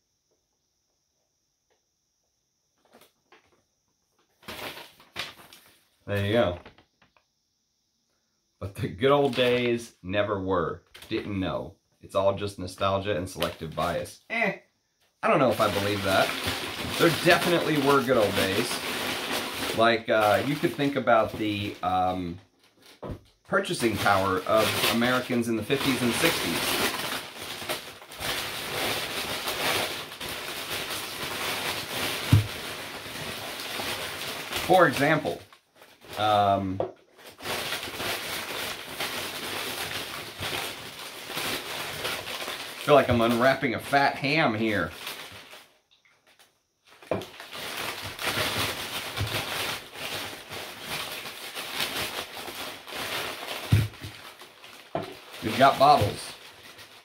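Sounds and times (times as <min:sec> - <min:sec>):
packing paper rustling: 0:04.2 - 0:07.2, 0:15.2 - 0:57.0.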